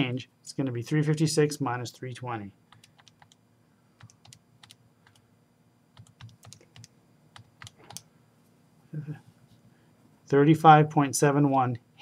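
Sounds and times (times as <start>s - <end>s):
calculator keys clicking: 2.8s - 3.4s, 6.0s - 8.0s.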